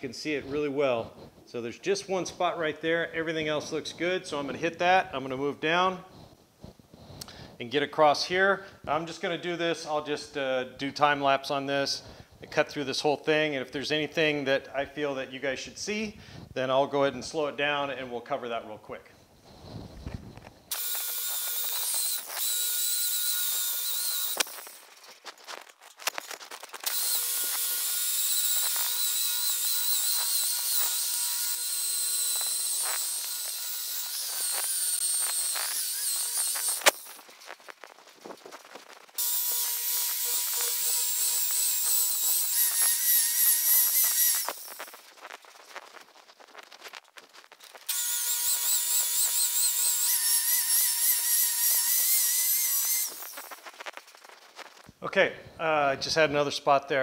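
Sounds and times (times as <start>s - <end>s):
electric polisher whine: 20.7s - 24.8s, 26.8s - 37.2s, 38.6s - 45.0s, 47.9s - 53.9s.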